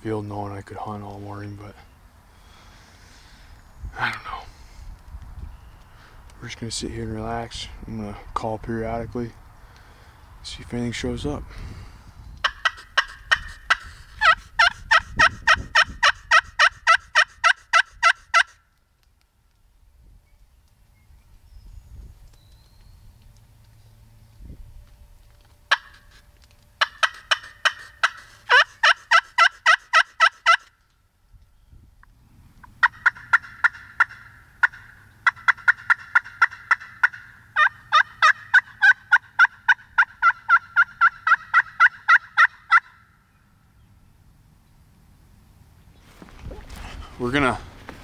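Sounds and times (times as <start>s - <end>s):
turkey call yelps: 12.4s - 18.6s, 25.7s - 26.2s, 26.8s - 30.7s, 32.7s - 43.1s.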